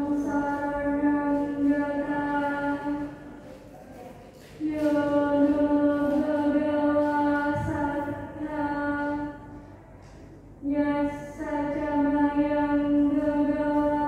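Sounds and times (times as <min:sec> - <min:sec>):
woman chanting: 0:00.0 - 0:09.7, 0:10.6 - 0:14.0.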